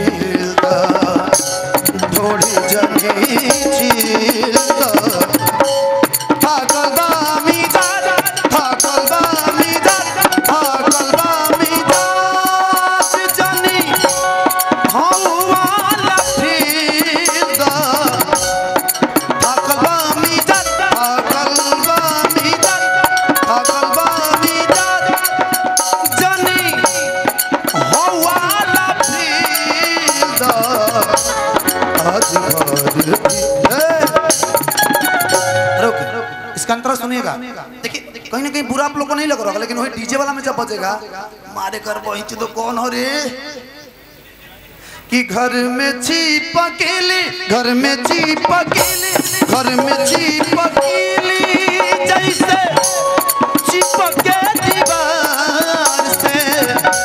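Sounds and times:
hand-drum percussion: 0:00.0 - 0:36.6, 0:47.3 - 0:57.0
man singing into microphone: 0:00.0 - 0:57.0
melody instrument holding notes: 0:01.3 - 0:37.1, 0:49.6 - 0:57.0.

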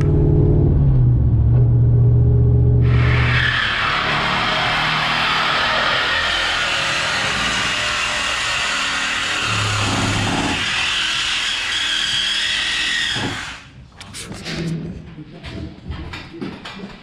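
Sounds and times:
power tool cutting exhaust pipe: 0:02.8 - 0:13.7.

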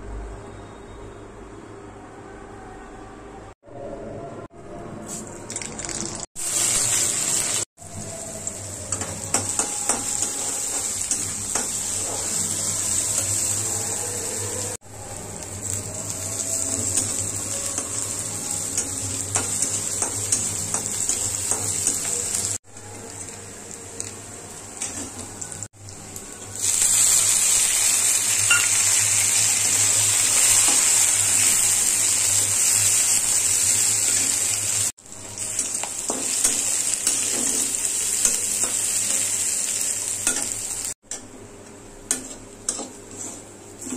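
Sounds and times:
vegetables sizzling in hot oil: 0:05.6 - 0:23.3, 0:24.0 - 0:41.0
metal spatula scraping pan: 0:42.1 - 0:43.9.

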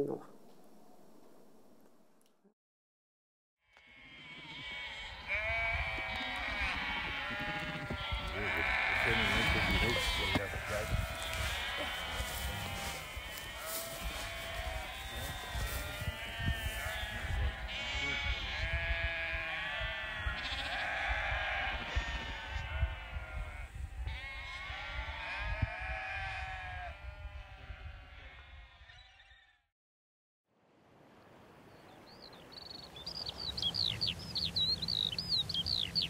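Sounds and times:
sheep bleating: 0:03.7 - 0:29.1
wind rumble on microphone: 0:05.5 - 0:29.0.

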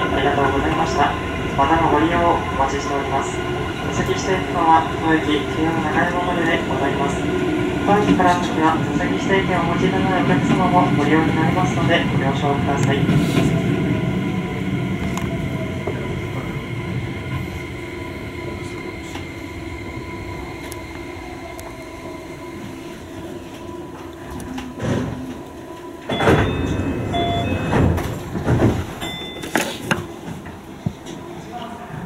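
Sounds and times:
train doors opening: 0:20.4 - 0:31.3
train clunks: 0:22.6 - 0:31.3.

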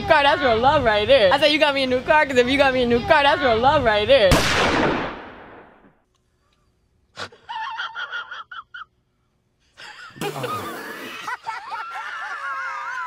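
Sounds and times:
wheezing gasping laugh: 0:07.2 - 0:08.9.

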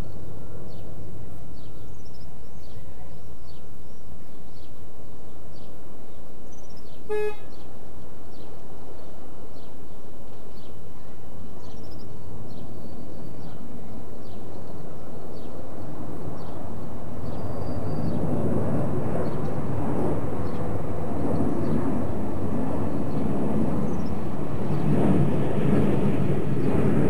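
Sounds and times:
faint bird chirps: 0:00.0 - 0:18.3
miniature train toot: 0:07.1 - 0:07.6.

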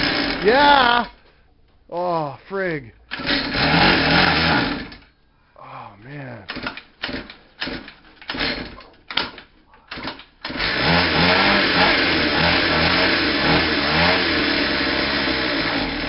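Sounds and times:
small engine running: 0:00.0 - 0:00.5, 0:03.1 - 0:05.0, 0:10.5 - 0:16.0
pull-start cord pulls: 0:03.1 - 0:05.1, 0:06.5 - 0:12.2.

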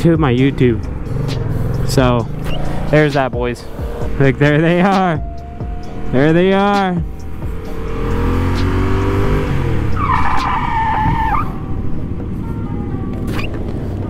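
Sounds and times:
motorcycle engine accelerating: 0:00.0 - 0:10.4
road and wind rush: 0:00.0 - 0:14.0.

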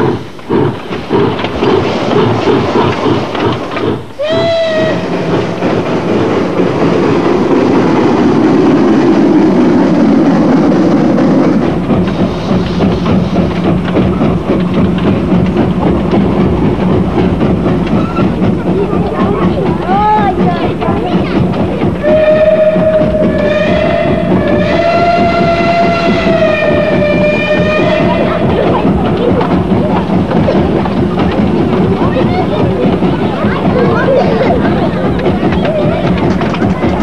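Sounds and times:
rail noise: 0:00.0 - 0:37.0
steam hissing: 0:00.0 - 0:37.0
steam locomotive running: 0:00.0 - 0:37.0
steam whistle note: 0:22.0 - 0:28.3.

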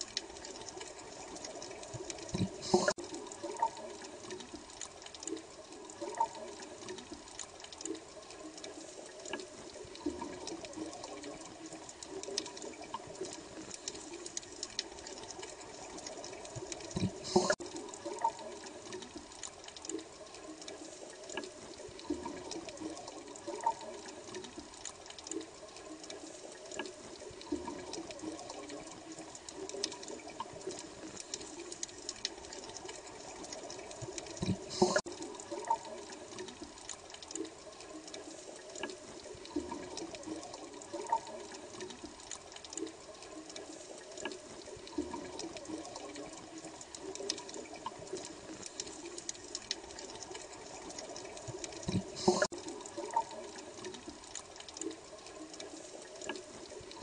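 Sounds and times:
water bubbling and gurgling: 0:00.0 - 0:57.0
bursts of bubbles: 0:16.9 - 0:18.7, 0:34.0 - 0:36.2, 0:51.4 - 0:53.5.

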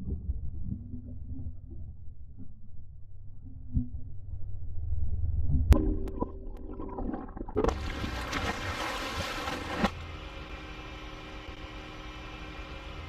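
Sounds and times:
low underwater rumble: 0:00.0 - 0:10.2.

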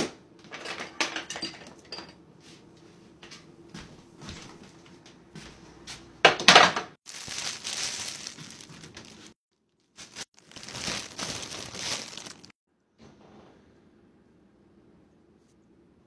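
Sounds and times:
packaging crinkling and rustling: 0:07.1 - 0:12.6.

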